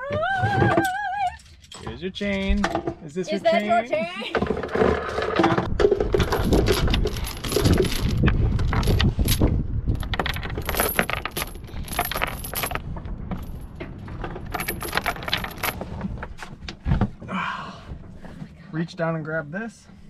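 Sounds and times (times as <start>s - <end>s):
metal chain clanking: 0.6s - 16.3s.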